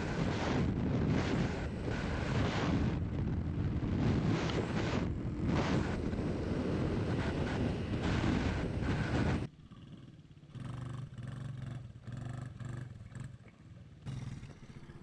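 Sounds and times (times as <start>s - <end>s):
wind buffeting microphone: 0.0s - 9.5s
quad bike engine rumble: 0.0s - 15.0s.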